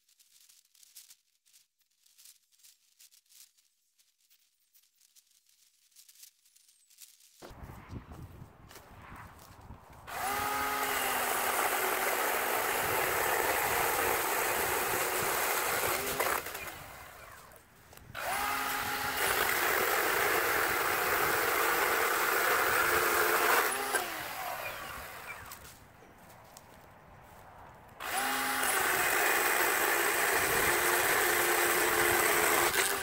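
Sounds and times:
cordless chainsaw motor whining: 10.1 - 25.7, 28.0 - 33.0
chain cutting through wood: 10.1 - 25.8, 28.0 - 33.0.

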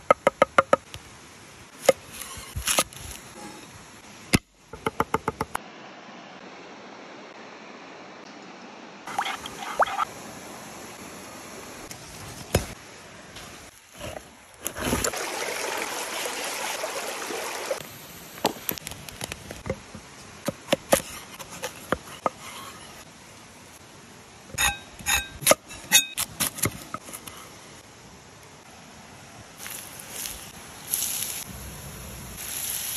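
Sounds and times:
mountain stream rushing: 5.6 - 18.7.

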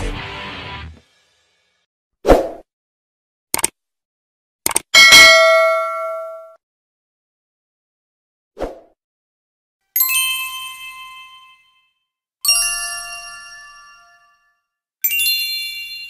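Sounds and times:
metallic bell-like chimes: 10.0 - 16.0.

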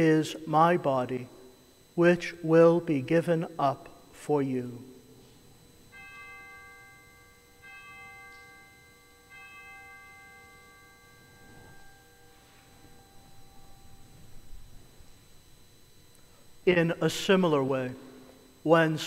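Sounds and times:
bell ringing: 5.9 - 15.8.

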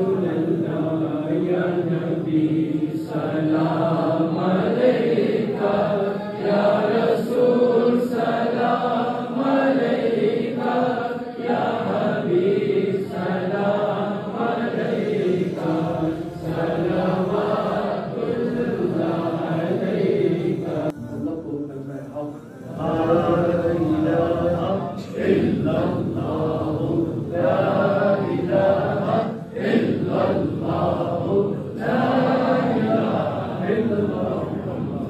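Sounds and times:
men chanting together: 0.0 - 21.4, 22.7 - 35.0.

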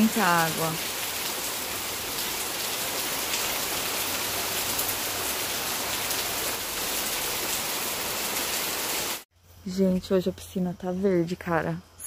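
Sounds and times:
heavy rain on plants and water: 0.0 - 9.3.

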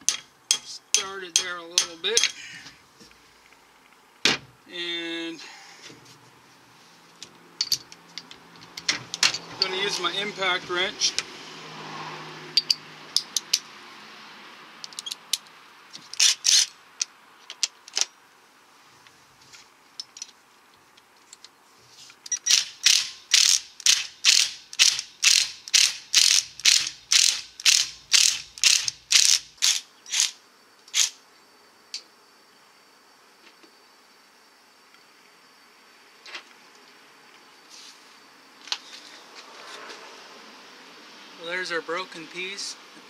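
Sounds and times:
impact wrench hammering: 22.5 - 29.4.

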